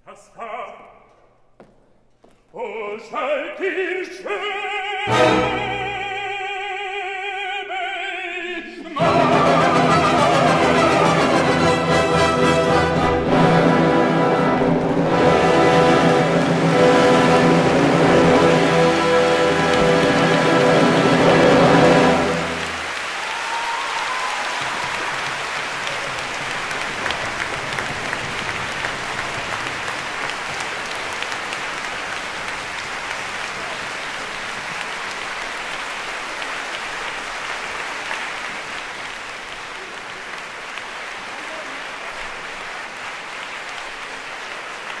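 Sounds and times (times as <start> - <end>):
audience applauding: 9.0 - 45.0.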